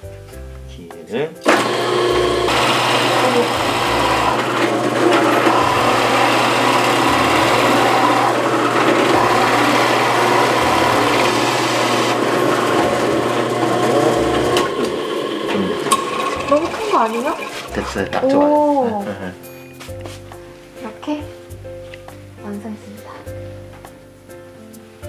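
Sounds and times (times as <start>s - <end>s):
drill press boring wood: 1.4s - 17.8s.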